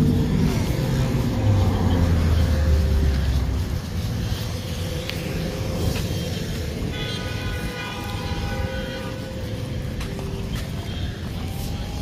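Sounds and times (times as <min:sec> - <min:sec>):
distant traffic rumble: 0:00.0 - 0:12.0
wind: 0:00.0 - 0:12.0
horn blast: 0:06.1 - 0:12.0.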